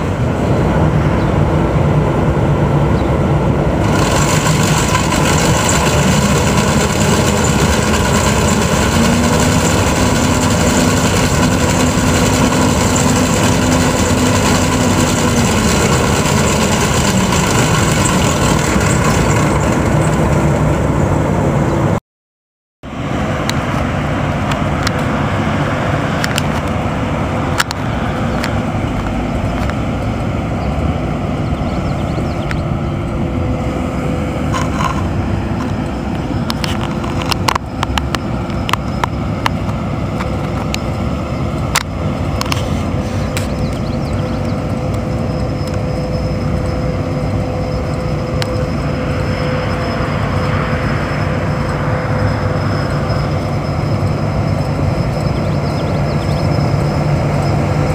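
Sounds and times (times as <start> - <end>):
combine harvester engine rumbling: 0.0 - 22.0, 22.8 - 57.9
thin steady whine: 0.0 - 22.0, 22.8 - 57.9.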